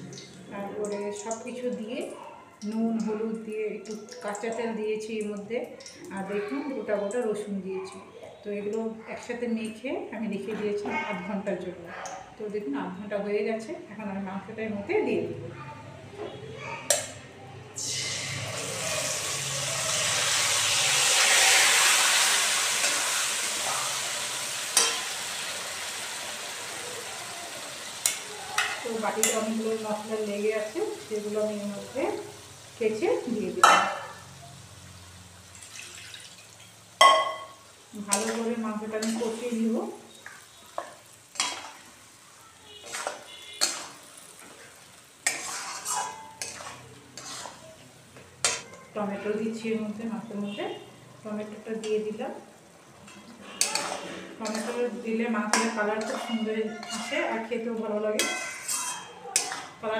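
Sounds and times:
meat sizzling in hot oil: 17.8 - 50.1, 51.2 - 59.8
spatula scraping metal pan: 42.7 - 47.8, 53.0 - 57.4, 58.2 - 59.8.

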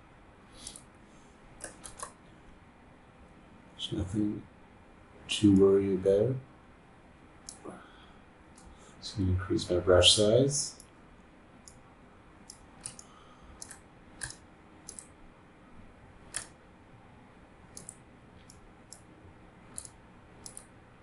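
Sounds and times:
low room hiss: 0.0 - 21.0
computer mouse clicks: 0.6 - 0.9, 1.6 - 2.2, 7.4 - 7.6, 8.5 - 8.7, 12.4 - 15.2, 16.3 - 16.6, 17.7 - 19.1, 19.7 - 20.8.

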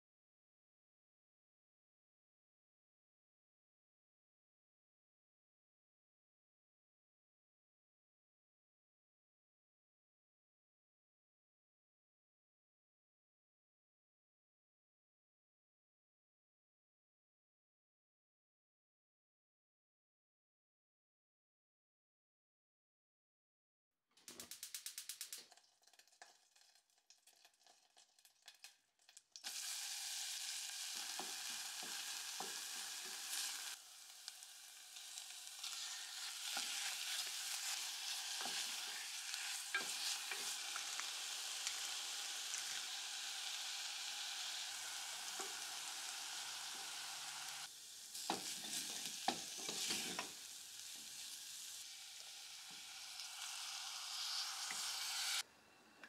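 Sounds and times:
chicken and onion sizzling in butter: 24.4 - 55.4
wooden spatula scraping and knocking pot: 48.2 - 50.4.

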